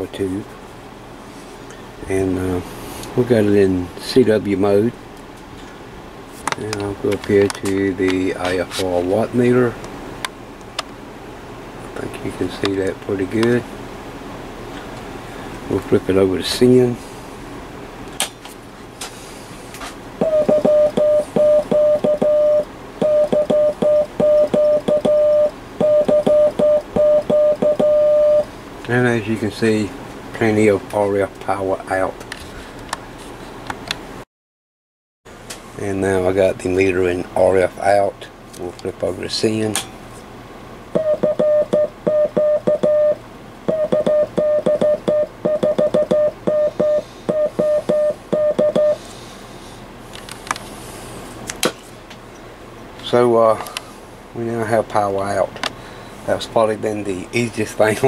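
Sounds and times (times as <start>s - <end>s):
morse code beeps: 20.2s - 28.5s, 41.0s - 49.0s.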